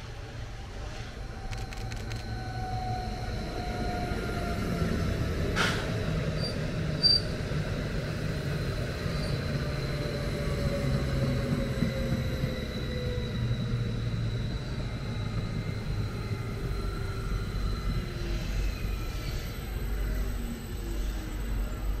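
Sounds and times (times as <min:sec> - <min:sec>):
train wheels rumbling on rail: 0:00.0 - 0:22.0.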